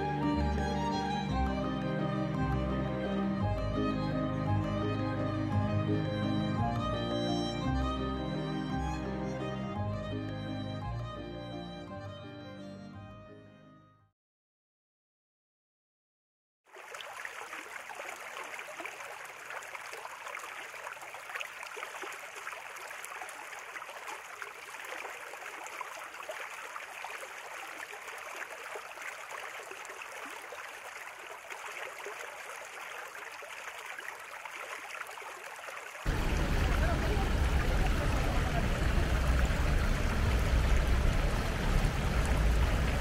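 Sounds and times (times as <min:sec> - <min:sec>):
fountain water splashing: 0:00.0 - 0:09.4, 0:16.7 - 0:43.0
loud deep rumbling: 0:36.1 - 0:43.0.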